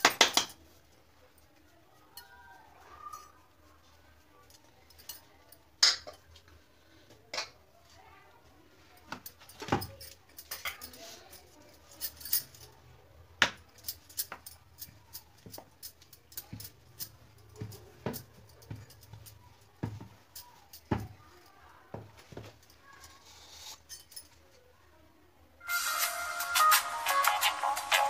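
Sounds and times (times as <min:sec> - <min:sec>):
bangles clinking: 0:00.0 - 0:06.6, 0:08.9 - 0:21.8, 0:22.5 - 0:24.6.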